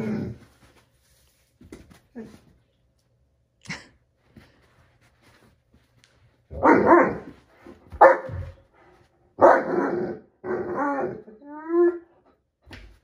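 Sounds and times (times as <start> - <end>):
dog barking: 6.6 - 7.3, 8.0 - 8.5, 9.4 - 10.0.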